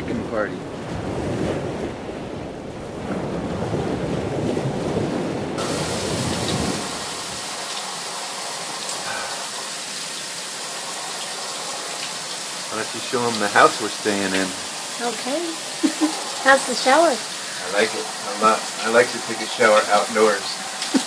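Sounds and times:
wind noise on microphone: 0.0 - 7.4
shower spraying water: 5.6 - 21.0.

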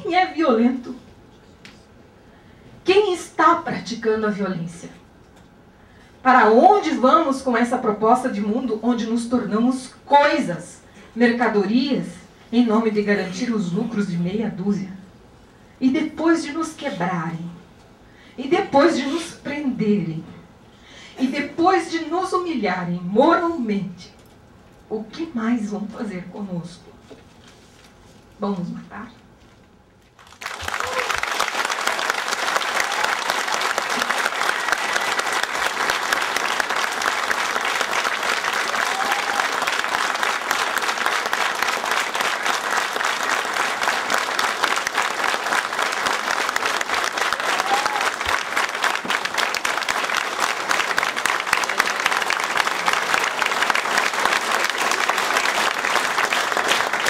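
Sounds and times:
large audience applauding: 30.2 - 57.0.

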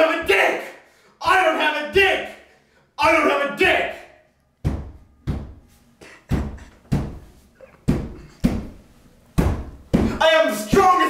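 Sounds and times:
fist pounding on wall: 4.6 - 5.7, 6.3 - 8.8, 9.4 - 11.0.

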